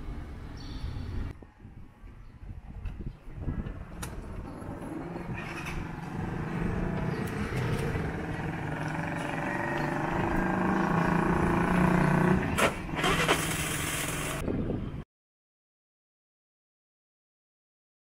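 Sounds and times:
hissy wind or road noise: 0:00.0 - 0:15.0
vehicle engine running: 0:03.7 - 0:14.4.

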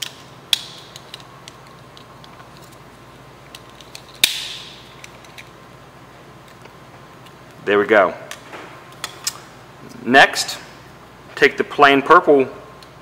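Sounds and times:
plastic parts snapping together: 0:03.5 - 0:05.5.

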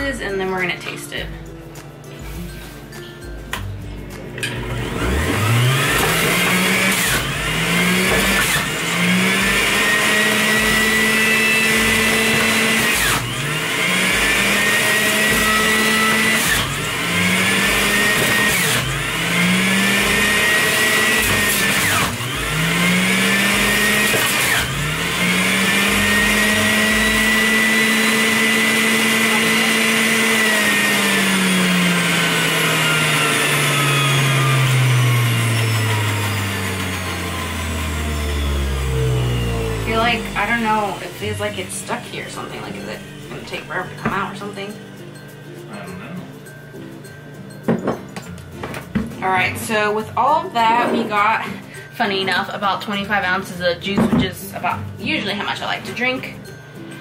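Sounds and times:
juicer motor hum: 0:04.1 - 0:45.4.

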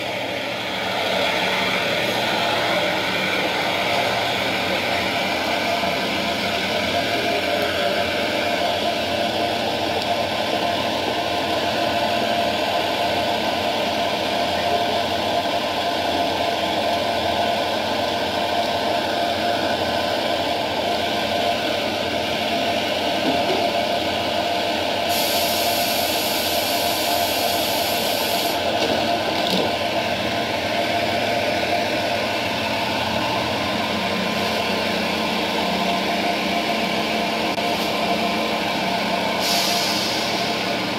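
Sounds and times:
diesel engine idling through speaker: 0:00.0 - 0:23.1, 0:24.5 - 0:40.9
burst of hiss: 0:25.1 - 0:28.7, 0:39.4 - 0:40.5.

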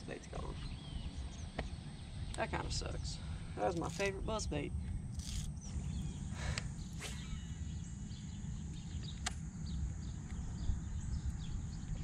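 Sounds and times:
wind rumble on microphone: 0:00.0 - 0:12.0
faint bird chirps: 0:05.3 - 0:12.0.

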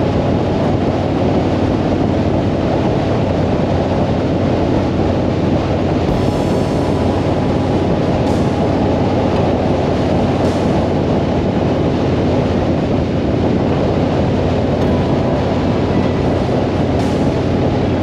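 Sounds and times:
wind and road rush: 0:00.0 - 0:18.0
motorcycle engine rumble: 0:05.7 - 0:18.0.

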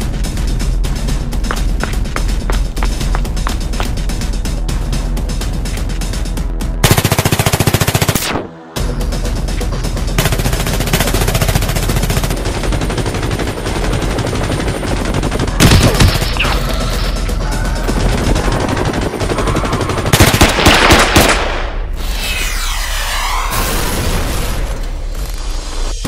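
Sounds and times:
background music: 0:00.0 - 0:21.9
machine-gun fire: 0:18.1 - 0:21.8.

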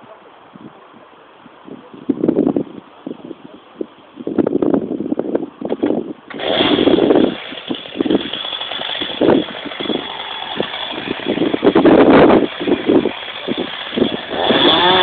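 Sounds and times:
chainsaw engine running: 0:06.3 - 0:15.0.

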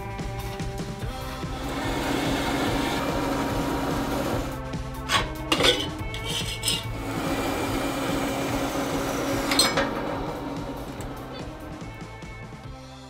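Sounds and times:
background music: 0:00.0 - 0:13.0
metal clanking and scraping: 0:05.0 - 0:12.2.

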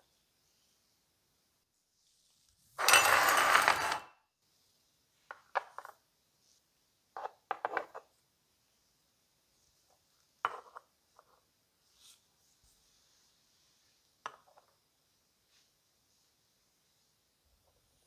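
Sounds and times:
metallic clinks on wooden table: 0:02.8 - 0:04.0.

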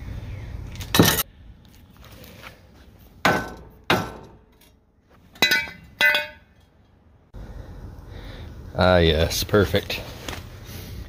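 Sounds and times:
steel knocking against steel: 0:05.4 - 0:06.6.

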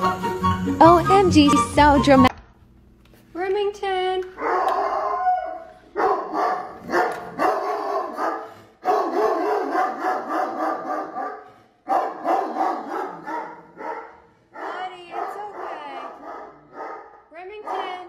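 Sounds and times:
dog crying and barking: 0:04.4 - 0:18.0.

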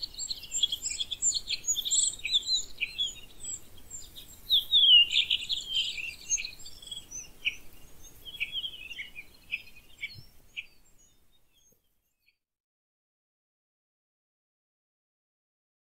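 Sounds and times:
birds chirping and calling: 0:00.0 - 0:11.8
faint outdoor background noise: 0:00.0 - 0:12.4.

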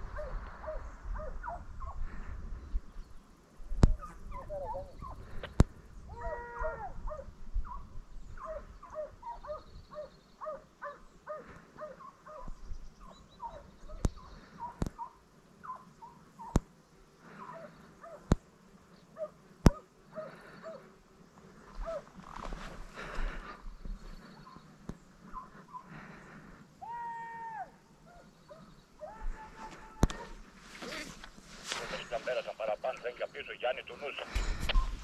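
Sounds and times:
hounds baying in the distance: 0:00.0 - 0:02.5, 0:03.8 - 0:05.5, 0:06.1 - 0:22.2, 0:24.1 - 0:31.0.

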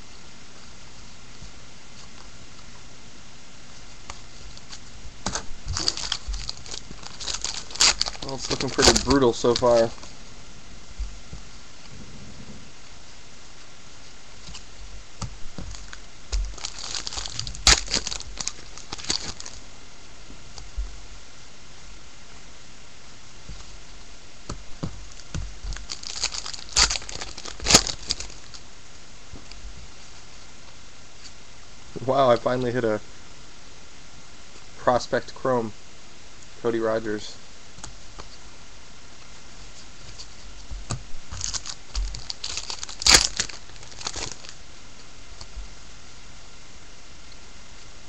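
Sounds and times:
cards rustling and crackling: 0:03.8 - 0:10.2, 0:14.0 - 0:19.6, 0:24.5 - 0:28.6, 0:39.6 - 0:44.6
foil wrapper tearing and crinkling: 0:04.5 - 0:10.1, 0:15.6 - 0:19.6, 0:25.0 - 0:28.6, 0:41.2 - 0:44.6.

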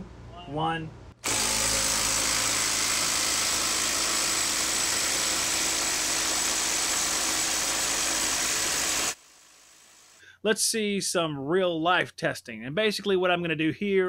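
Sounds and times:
impact driver hammering: 0:01.2 - 0:09.2.

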